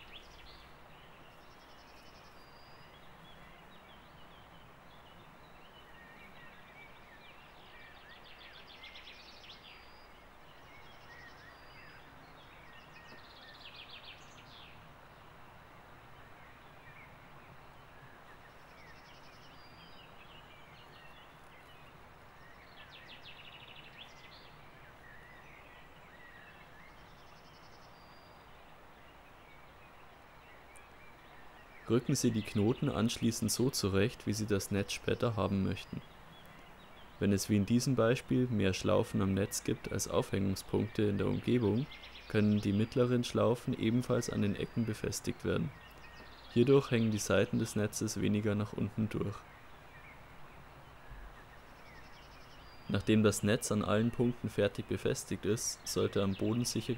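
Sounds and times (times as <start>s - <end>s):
birds whistling and trilling: 0.0s - 14.9s, 16.2s - 56.9s.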